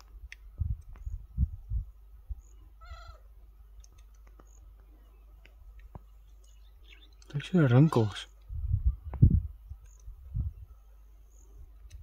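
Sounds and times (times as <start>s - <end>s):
mewing animal call: 2.8s - 3.2s
faint clicks: 3.8s - 7.4s, 9.8s - 10.1s.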